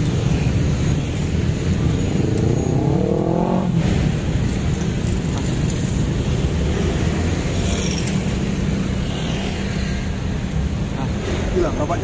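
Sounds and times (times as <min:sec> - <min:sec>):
vehicles rumbling past: 0:00.0 - 0:12.0
engine speeding up: 0:02.1 - 0:04.2.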